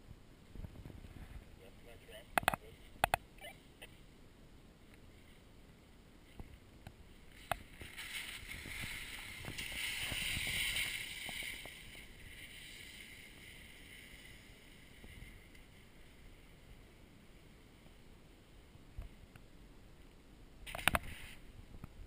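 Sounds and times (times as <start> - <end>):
sharp clicks: 2.4 - 3.2
skis scraping over snow: 7.1 - 17.4, 20.7 - 21.5.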